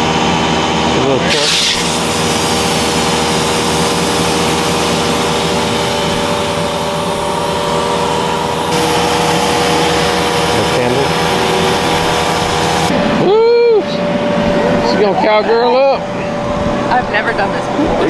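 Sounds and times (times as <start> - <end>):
electric air blower humming: 0.0 - 18.0.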